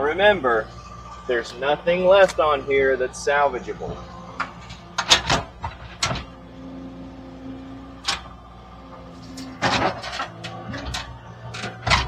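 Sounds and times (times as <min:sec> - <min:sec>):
skid steer engine hum: 0:00.0 - 0:12.0
metal clanks and knocks: 0:03.9 - 0:06.4, 0:08.9 - 0:12.0.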